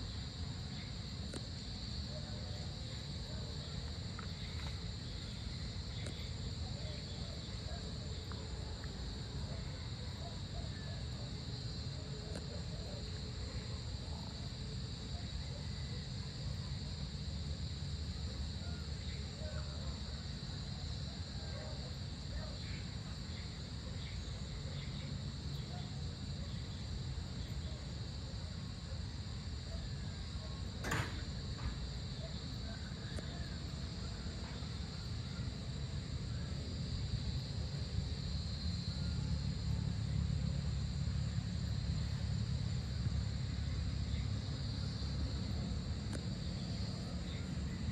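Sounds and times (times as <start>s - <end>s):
insects trilling: 0.0s - 47.9s
low steady rumble: 32.6s - 47.9s.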